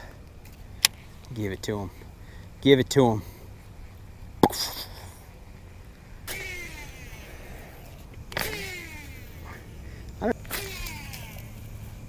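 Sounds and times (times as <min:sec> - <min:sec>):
steady low hum: 0:00.0 - 0:12.0
fishing reel spool whirring: 0:05.0 - 0:12.0.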